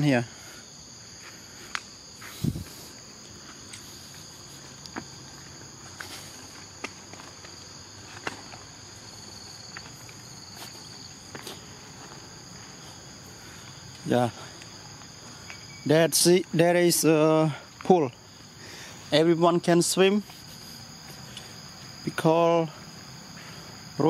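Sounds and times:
high-pitched insect drone: 0.0s - 24.0s
footsteps on leaf litter: 2.2s - 13.0s.

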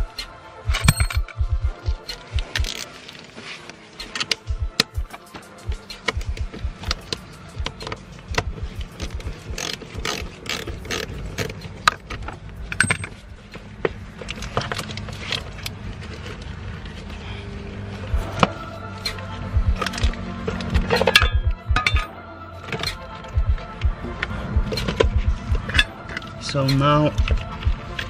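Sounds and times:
ratchet wrench clicking: 2.1s - 2.8s, 5.8s - 12.0s, 20.9s - 22.1s.

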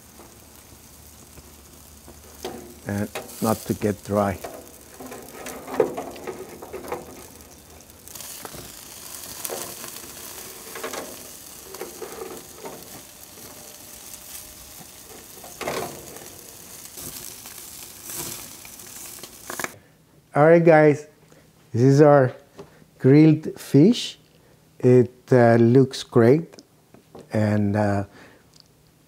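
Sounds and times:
fish sizzling on grill: 0.0s - 19.8s.

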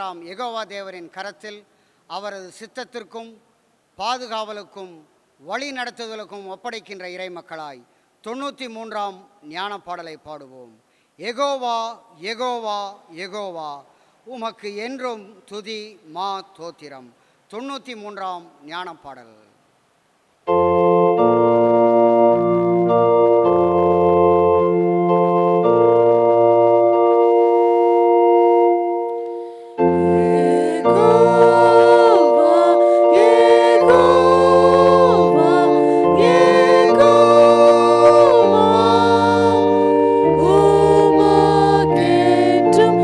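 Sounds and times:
organ playing sustained chords: 20.5s - 43.0s
people singing a hymn: 29.8s - 43.0s.

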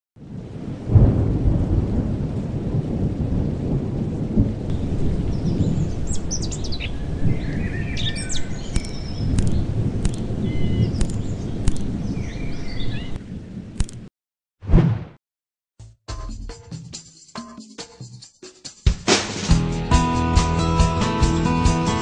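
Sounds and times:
rumble of thunder: 0.2s - 13.8s
birds chirping: 4.7s - 13.5s.

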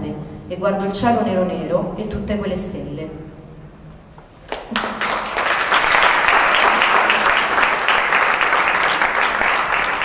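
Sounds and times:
audience applause: 4.5s - 10.0s.

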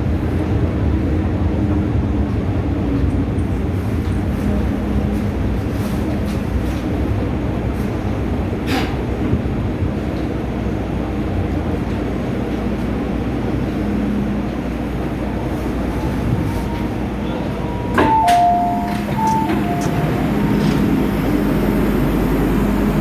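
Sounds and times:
electric train rumbling: 0.0s - 23.0s
train doors knocking: 16.8s - 22.6s
two-tone door chime: 17.4s - 20.9s.

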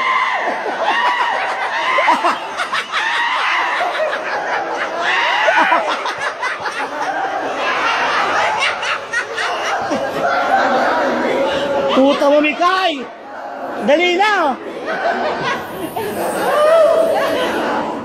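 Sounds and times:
people laughing: 0.0s - 18.0s
people talking: 13.8s - 18.0s.

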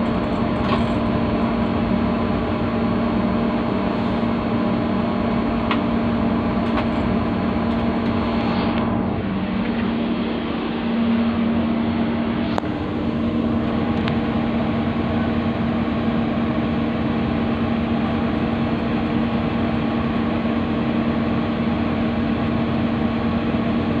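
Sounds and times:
locomotive engine droning: 0.0s - 24.0s.

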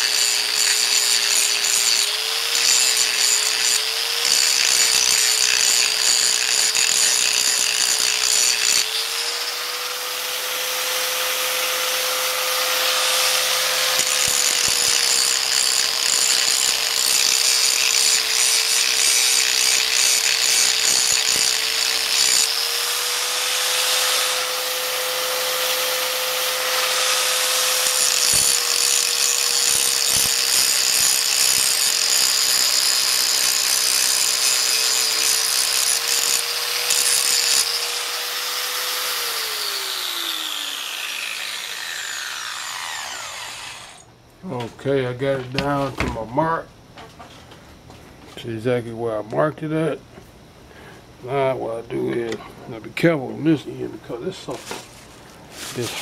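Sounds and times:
grinder grinding metal: 0.0s - 44.1s, 55.5s - 56.0s.

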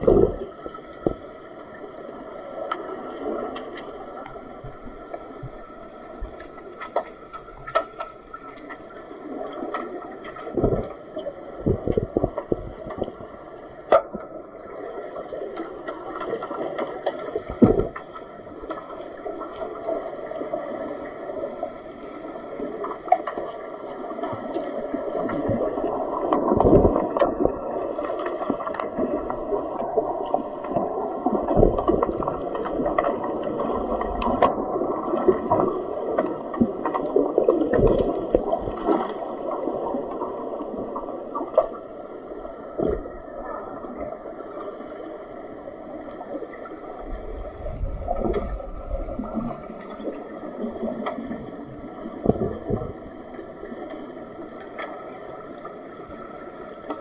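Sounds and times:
bubbles: 0.0s - 1.3s, 9.2s - 13.3s, 19.2s - 45.1s, 46.0s - 54.1s
muffled underwater splashing: 0.0s - 57.0s.

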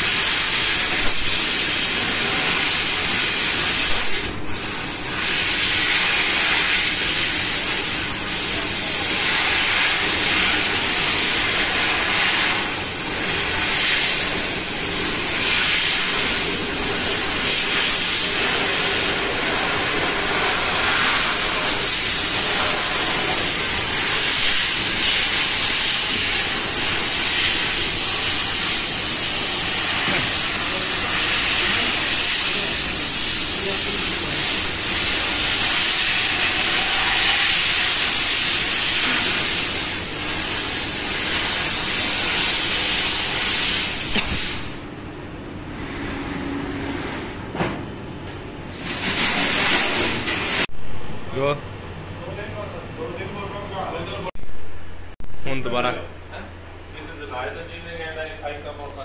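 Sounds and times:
laser cutter jet hissing: 0.0s - 44.8s, 48.8s - 50.7s.

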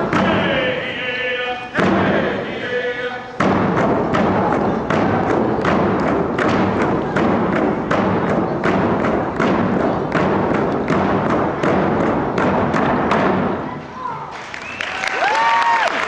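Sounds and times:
hand drums beating: 3.4s - 13.8s.

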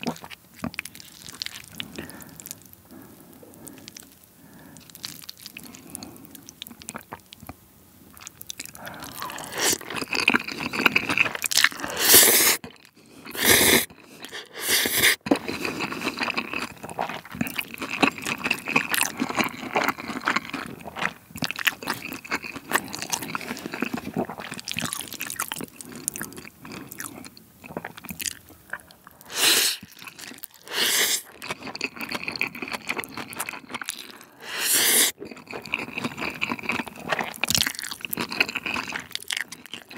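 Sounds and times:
close chewing: 8.1s - 39.9s
slurping noodles: 8.8s - 12.6s, 13.2s - 20.7s, 29.2s - 39.9s.

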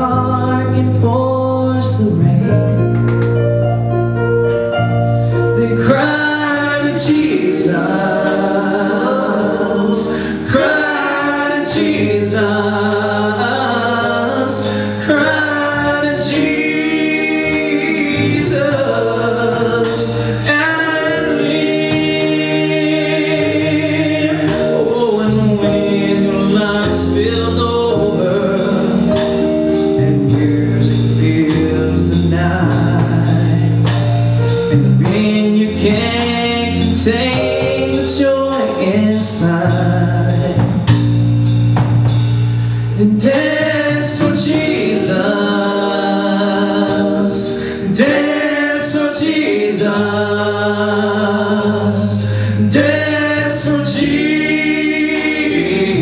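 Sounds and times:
man singing lead: 0.0s - 2.9s, 5.5s - 41.1s, 42.9s - 56.0s
live band playing worship song: 0.0s - 56.0s
sustained low bass notes: 0.0s - 56.0s
steady drum beat: 5.8s - 56.0s.

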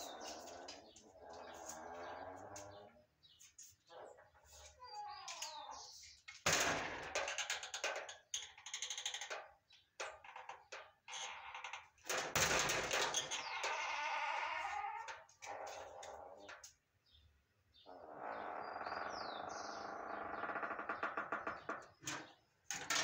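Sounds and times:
wavering bleat-like squeal: 13.5s - 15.1s.

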